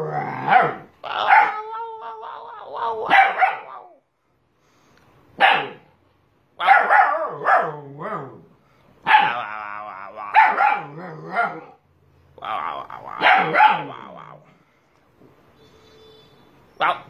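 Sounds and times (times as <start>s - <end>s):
puppy barking and howling: 0.0s - 4.0s, 6.6s - 8.5s, 9.1s - 11.8s, 13.1s - 14.2s.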